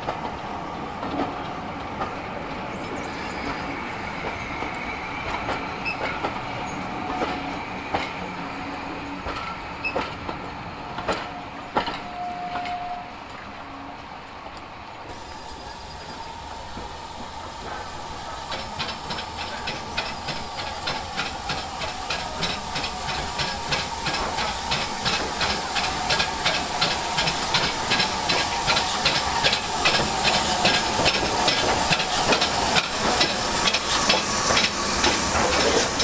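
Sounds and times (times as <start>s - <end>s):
steam hissing: 15.0s - 36.0s
steam locomotive exhaust beats: 15.1s - 36.0s.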